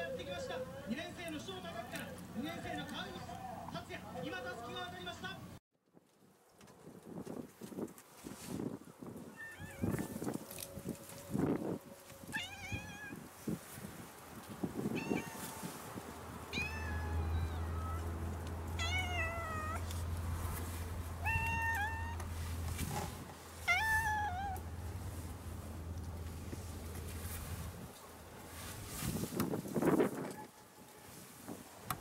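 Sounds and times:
cat meowing: 9.3 - 10.2, 12.3 - 13.2, 14.9 - 15.7, 16.5 - 18.2, 18.8 - 19.9, 21.2 - 22.3, 23.6 - 24.6
low steady hum: 17.4 - 29.2.

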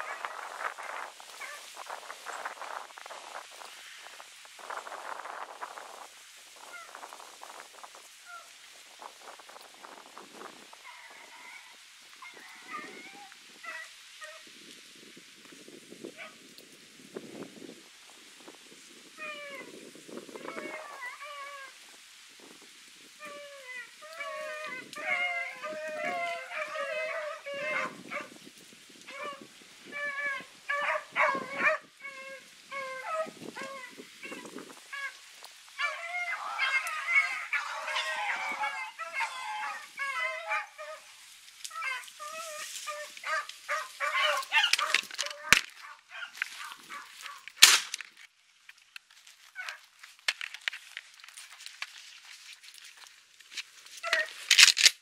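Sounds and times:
dogs baying: 24.1 - 28.3, 30.0 - 31.8, 35.8 - 41.1, 41.7 - 47.4
gunshot: 47.6 - 48.0.

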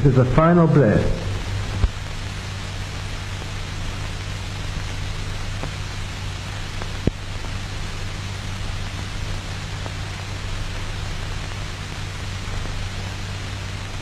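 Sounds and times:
film soundtrack hiss and hum: 0.0 - 14.0
faint tick: 6.8 - 7.2.

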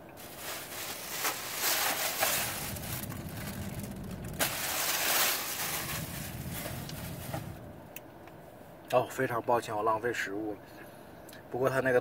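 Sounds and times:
plastic bag crinkling: 0.0 - 7.6.

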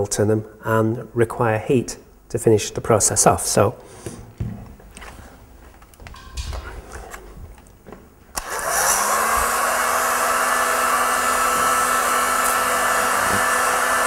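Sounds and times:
heat gun fan whirring: 4.3 - 14.0.

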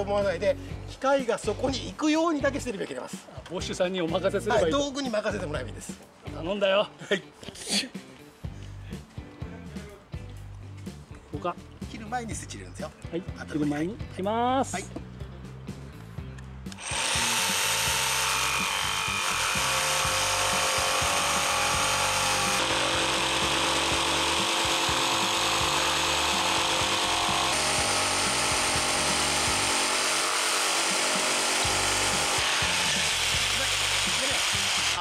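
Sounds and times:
jigsaw sawing through wood: 16.7 - 35.0.

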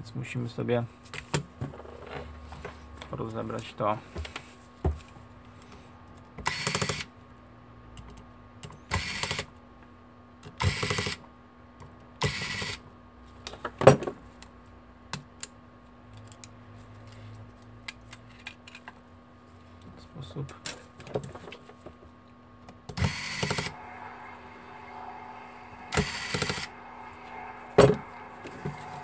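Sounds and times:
electric screwdriver whirring: 23.0 - 23.7.

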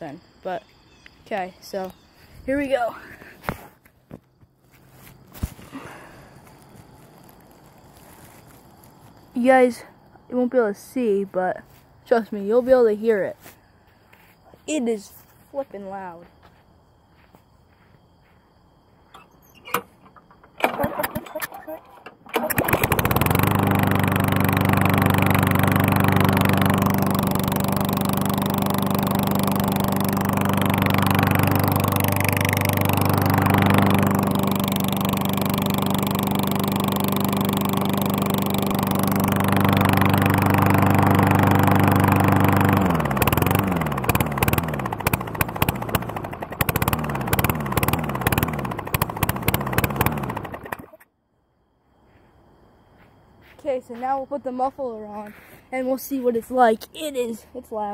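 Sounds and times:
unmuffled mower engine running: 2.5 - 9.2, 19.1 - 51.0.

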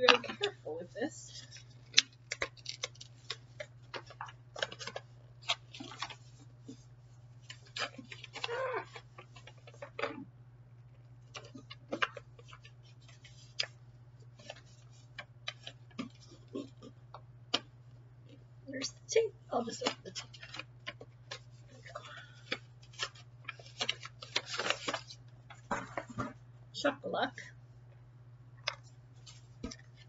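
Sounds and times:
wrapping paper rustling: 0.0 - 10.2, 11.2 - 16.9, 19.6 - 26.3, 28.6 - 30.0
steady low hum: 0.0 - 30.0.

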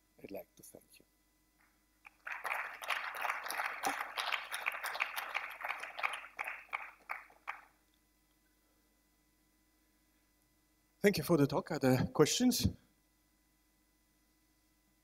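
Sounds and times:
audience applauding: 2.1 - 7.7.

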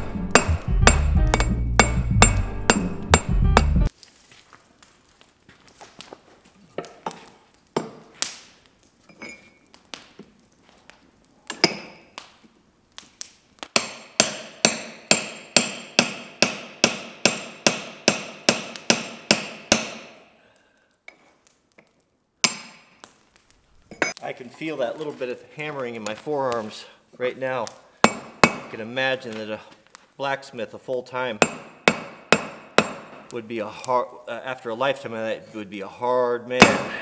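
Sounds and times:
hammer striking chisel on steel: 0.0 - 3.9, 13.8 - 20.2, 22.4 - 22.9, 28.0 - 28.7, 31.4 - 33.3, 36.6 - 37.0.

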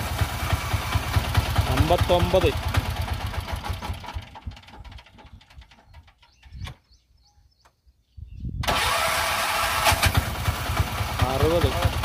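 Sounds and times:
engine running loudly: 0.0 - 3.9, 8.7 - 12.0
engine ticking to a stop: 0.0 - 6.6, 9.6 - 12.0
electric starter cranking: 8.6 - 11.2.

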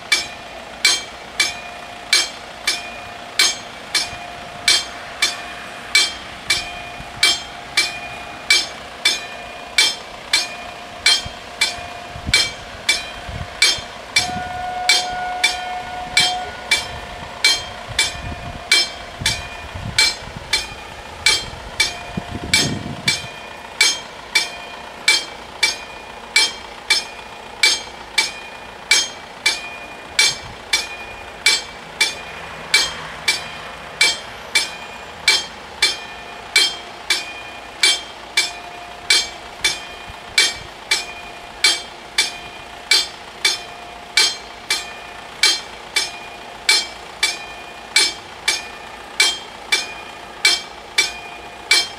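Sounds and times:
level crossing warning bell: 0.0 - 51.9
low rumble: 9.8 - 34.6.

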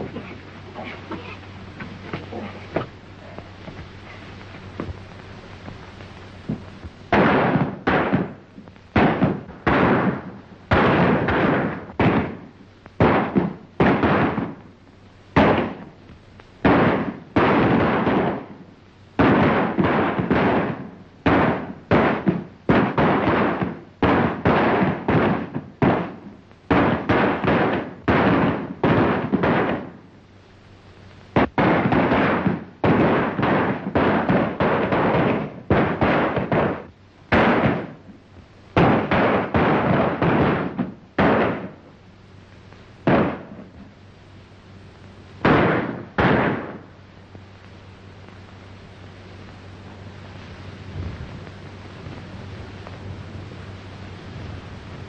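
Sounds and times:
gunshots with echo: 7.1 - 8.4, 45.4 - 46.9.

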